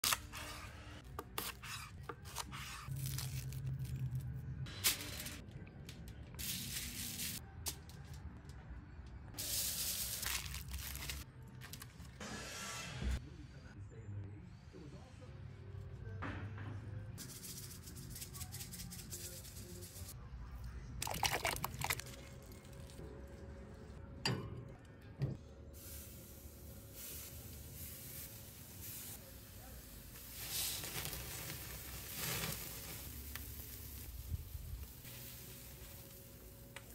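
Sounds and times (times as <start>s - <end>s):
papery skin being peeled: 1.5s - 4.3s
salt grains crackling on board: 30.2s - 36.6s.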